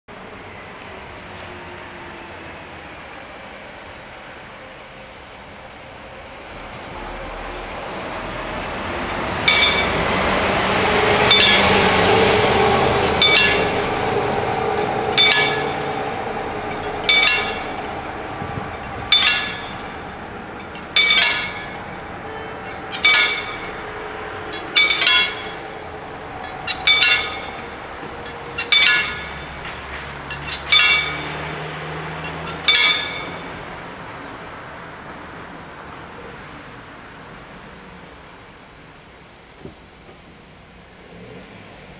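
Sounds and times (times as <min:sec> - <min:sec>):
coach driving past: 0:00.2 - 0:36.7
level crossing bell ringing: 0:20.6 - 0:23.9, 0:24.5 - 0:25.8.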